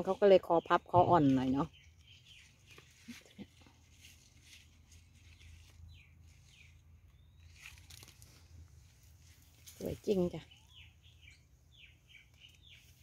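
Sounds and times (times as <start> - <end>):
high downward-gliding bird chirps: 10.5 - 12.9.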